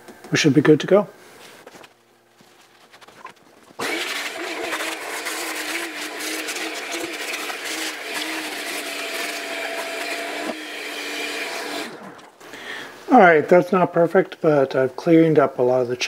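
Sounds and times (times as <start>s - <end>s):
shop vacuum running: 3.8s - 12.4s.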